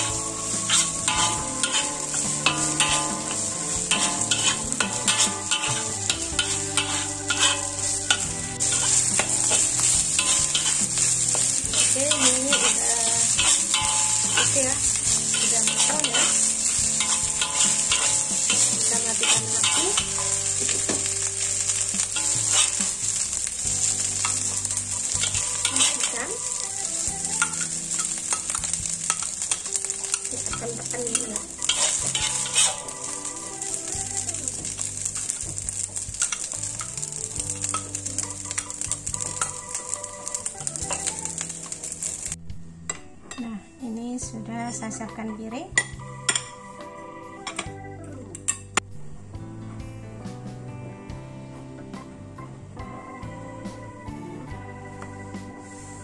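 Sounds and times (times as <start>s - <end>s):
rice sizzling in a wok: 0.0s - 42.4s, 54.4s - 56.0s
spatula scraping wok: 0.0s - 42.4s, 55.6s - 56.0s.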